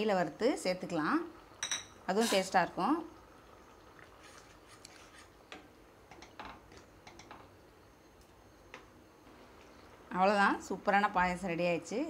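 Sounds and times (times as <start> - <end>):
ladle stirring pan: 1.6 - 2.7, 3.9 - 7.5
simmering pan clicks: 5.5 - 7.5.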